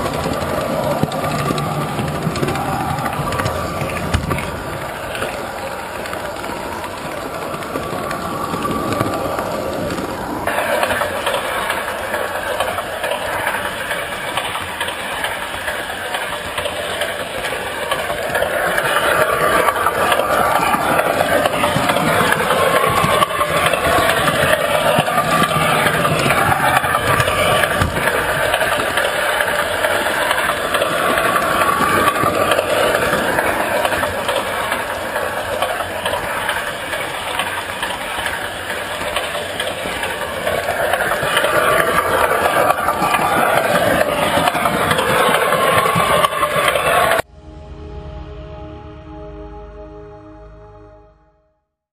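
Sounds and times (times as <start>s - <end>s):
model train motor whine: 0.0s - 47.2s
wheel and rail rattle: 0.0s - 47.3s.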